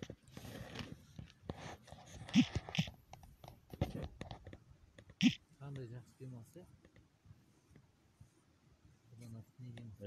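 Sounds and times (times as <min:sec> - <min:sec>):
handheld camera rustling and knocks: 0:00.0 - 0:05.2.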